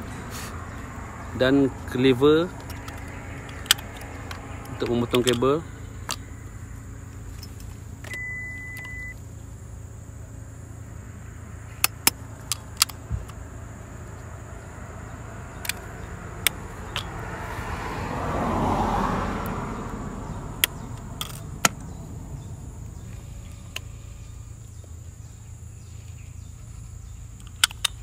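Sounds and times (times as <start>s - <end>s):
road vehicle passing: 0.0s - 28.0s
splicing tools clicking: 27.4s - 28.0s.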